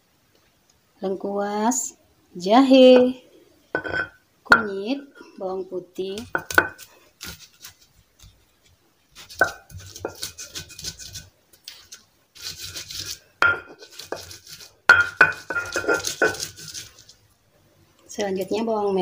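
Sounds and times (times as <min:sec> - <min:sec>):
stone pestle knocking and grinding: 0:03.8 - 0:04.7, 0:06.2 - 0:07.4, 0:09.2 - 0:11.2, 0:12.7 - 0:16.8.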